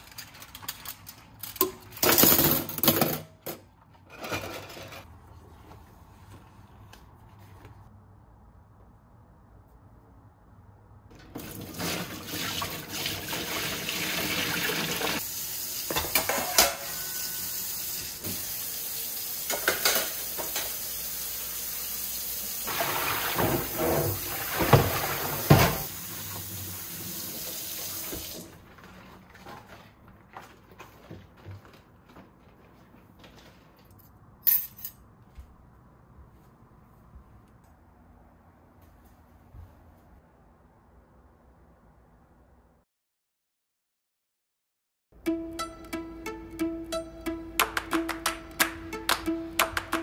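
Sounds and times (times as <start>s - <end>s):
tap water running into sink: 11.1s - 15.2s, 22.6s - 28.5s
metal pots and utensils clinking: 15.9s - 17.2s.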